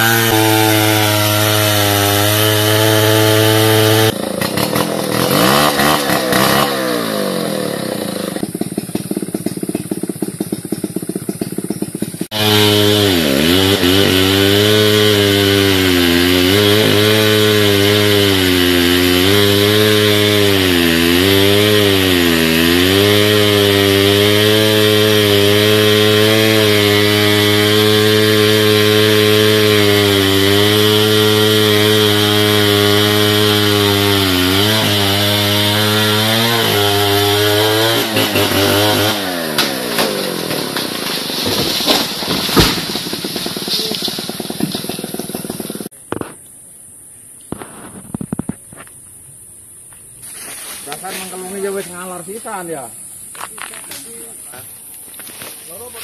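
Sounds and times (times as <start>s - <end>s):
chainsaw cutting at high revs: 0.0s - 46.0s
sharp cracks and knocks: 38.0s - 46.4s.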